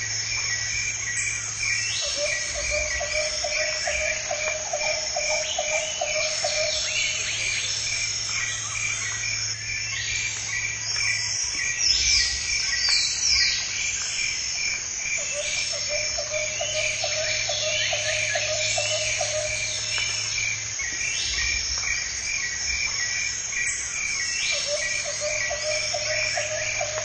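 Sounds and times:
insects trilling: 0.0 - 27.0
frog croaking: 2.0 - 7.8.

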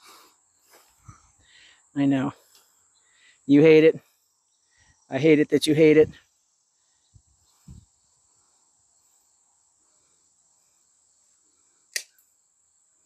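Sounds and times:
nail clippers clicking: 11.9 - 12.2.

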